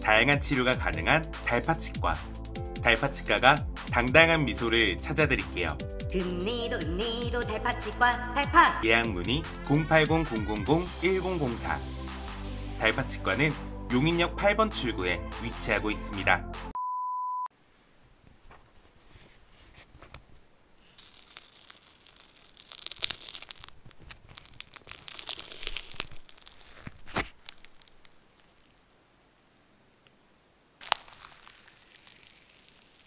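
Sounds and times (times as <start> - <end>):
short steady beep: 16.8 - 17.5
slime crackling and popping: 20.8 - 29.6, 30.8 - 33.0.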